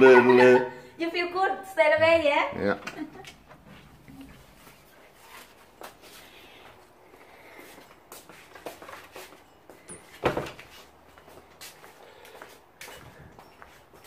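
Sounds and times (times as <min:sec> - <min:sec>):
footsteps on tiled floor: 0:03.2 - 0:14.0.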